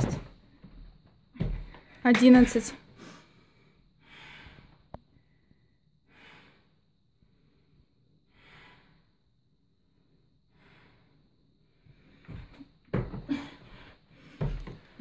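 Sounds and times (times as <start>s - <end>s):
person breathing heavily: 2.9s - 9.2s, 10.5s - 12.6s.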